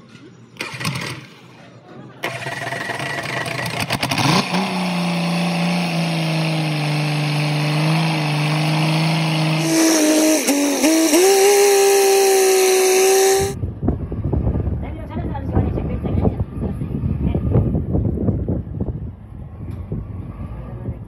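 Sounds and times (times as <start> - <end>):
engine running: 2.2 - 13.6.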